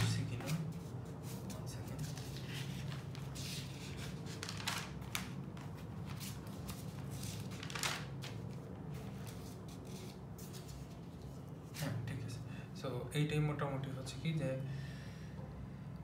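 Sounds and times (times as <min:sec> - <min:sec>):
soft rustling and handling: 0:00.0 - 0:12.2
steady low hum: 0:00.0 - 0:16.0.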